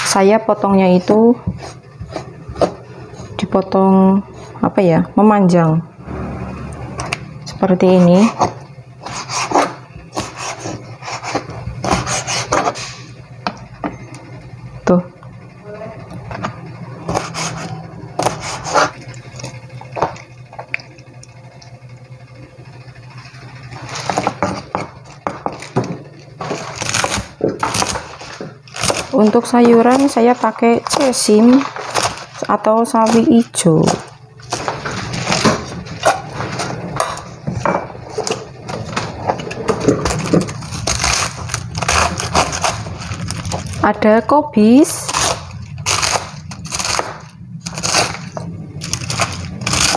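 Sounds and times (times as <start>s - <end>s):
steady low hum: 0.0s - 49.9s
knife chopping on plastic board: 8.0s - 12.9s, 17.1s - 18.9s, 24.1s - 30.2s
knife slicing on plastic board: 8.3s - 12.9s.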